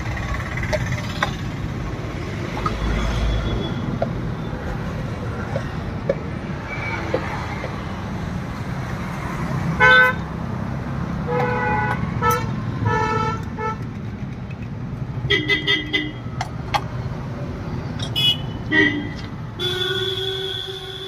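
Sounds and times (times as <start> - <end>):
road traffic rumbling: 0.0 - 21.0
vehicle horns honking: 9.8 - 10.2, 11.3 - 13.8, 15.3 - 16.2, 18.1 - 21.0.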